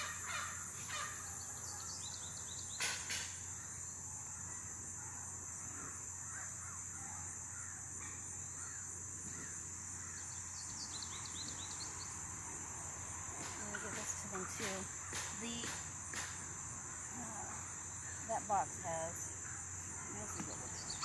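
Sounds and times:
small birds chirping: 0.0s - 3.8s, 8.1s - 21.0s.

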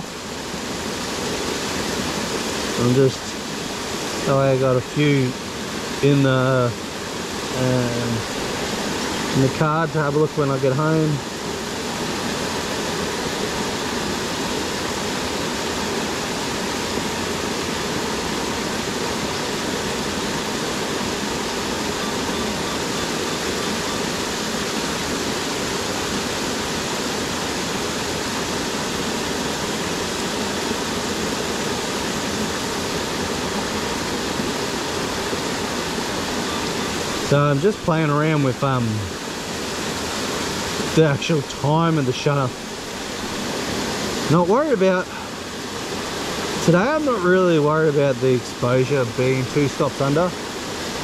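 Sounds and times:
waterfall rushing: 0.0s - 51.0s.

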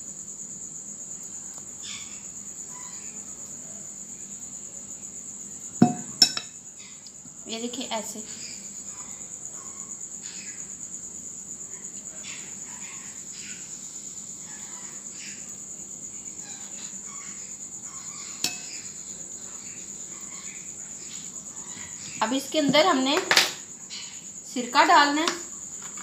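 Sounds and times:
pulsing insect trill: 0.0s - 26.0s.

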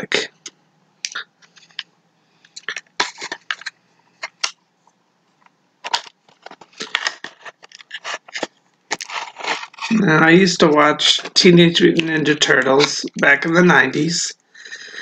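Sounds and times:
packaging crinkling and rustling: 2.6s - 4.6s, 5.4s - 10.1s.

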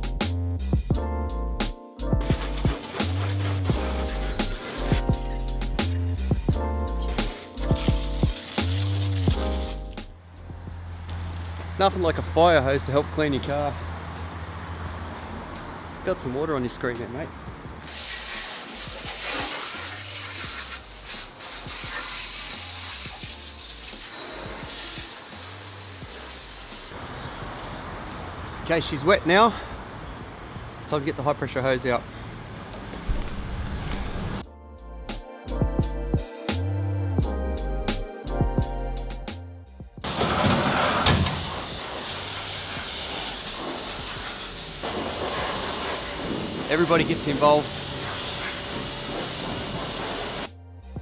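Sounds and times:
hose water spraying tyre: 2.2s - 10.2s, 17.9s - 27.0s, 40.0s - 50.5s.

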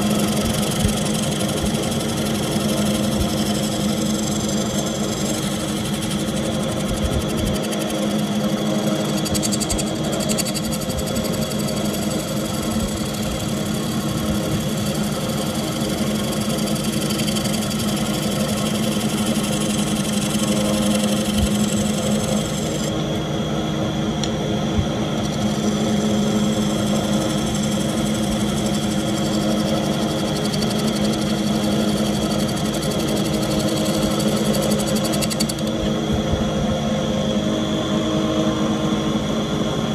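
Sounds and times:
wood lathe humming: 0.0s - 23.0s, 25.2s - 35.9s
gouge shaving wood: 0.1s - 22.9s.

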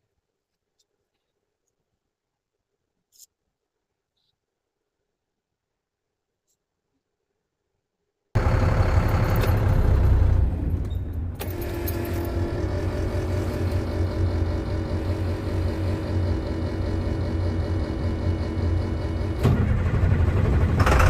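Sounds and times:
vehicle engine running: 8.4s - 21.0s.

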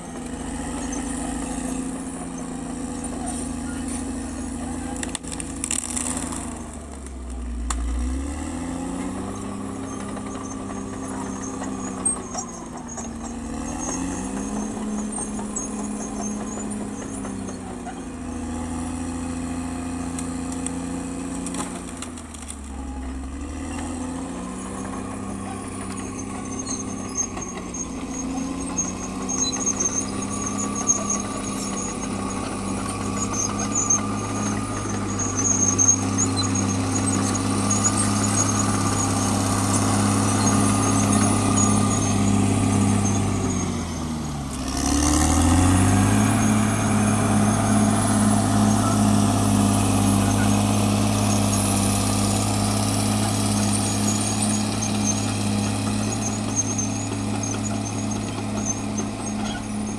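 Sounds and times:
bulldozer diesel engine running: 0.0s - 59.9s
thin high squeal: 0.4s - 5.0s, 24.0s - 43.8s, 46.0s - 51.8s, 53.6s - 59.9s.

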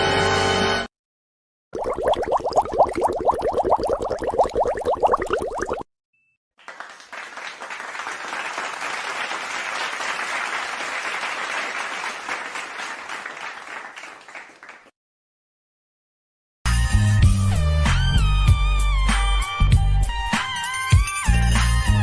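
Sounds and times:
crowd applause: 6.6s - 14.9s.

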